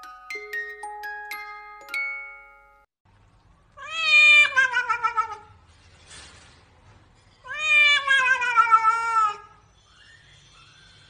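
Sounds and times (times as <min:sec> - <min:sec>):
cat yowling: 0:03.8 - 0:05.5, 0:07.5 - 0:09.6.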